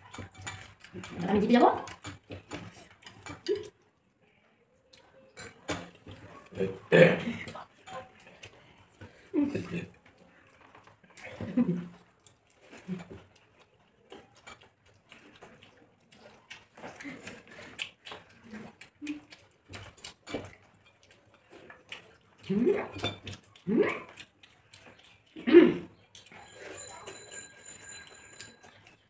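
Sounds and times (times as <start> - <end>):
fingers clicking on plates: 0.0 - 3.8
wet chewing and lip-smacking: 0.0 - 4.1, 7.4 - 27.1.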